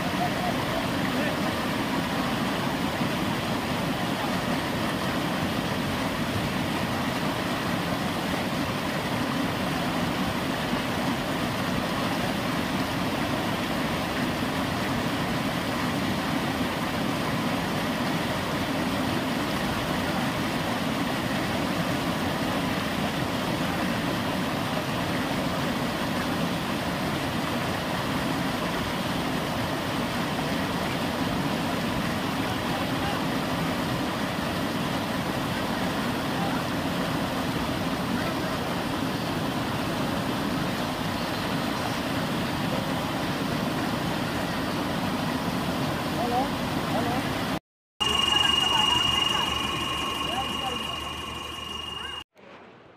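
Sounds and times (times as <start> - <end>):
river water rushing: 0.0 - 41.1.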